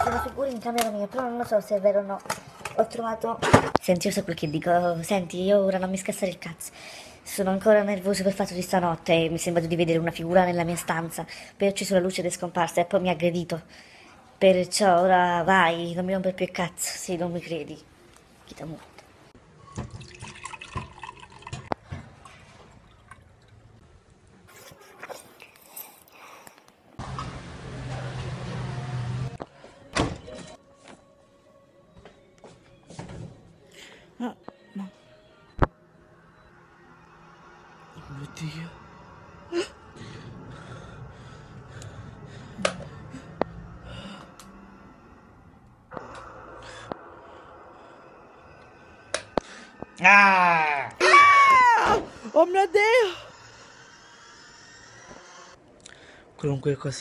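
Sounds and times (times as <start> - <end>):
liquid dripping and sloshing: 19.7 - 23.8
faint music: 27.0 - 53.7.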